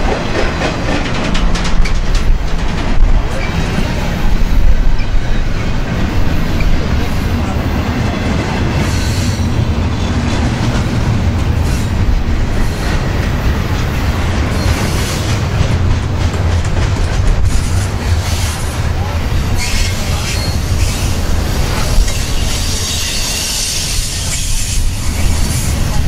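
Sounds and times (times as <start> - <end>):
wheel clacks over rail joints: 0.0 - 3.7
steel wheels rumbling on rail: 0.0 - 26.0.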